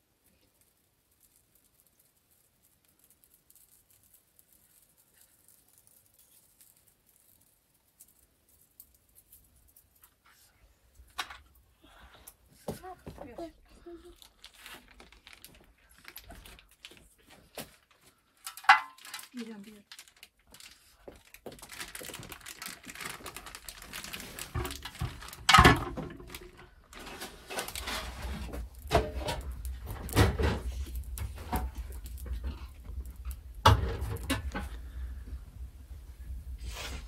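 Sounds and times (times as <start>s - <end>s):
hands knocking and rustling pot: 12.6s - 13.5s, 23.9s - 35.4s.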